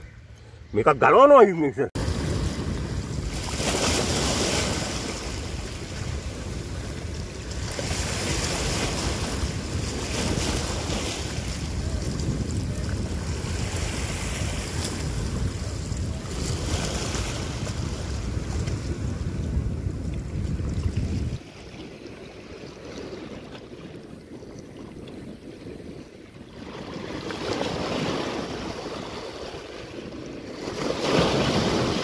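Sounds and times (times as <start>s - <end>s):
waves splashing against rocks: 1.2s - 18.9s, 26.6s - 32.0s
wind buffeting microphone: 2.0s - 21.4s, 22.2s - 32.0s.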